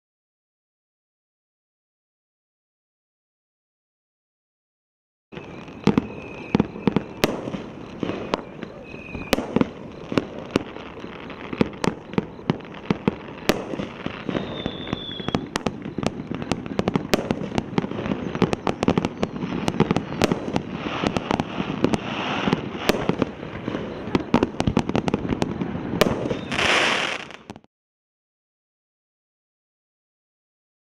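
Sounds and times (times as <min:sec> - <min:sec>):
firework bangs and pops: 0:05.4 - 0:27.7
firework crackling: 0:05.4 - 0:27.7.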